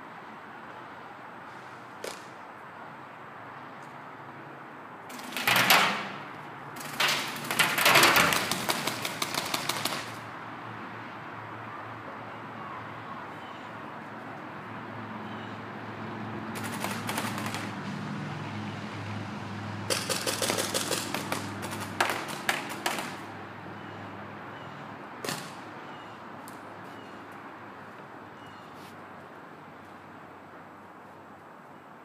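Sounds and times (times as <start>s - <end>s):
paintball markers firing: 7.0s - 10.2s, 19.9s - 23.2s.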